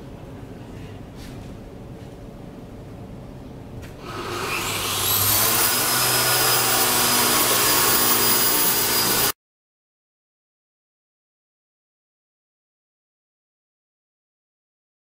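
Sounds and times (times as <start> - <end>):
electric motor whine: 4.0 - 9.4.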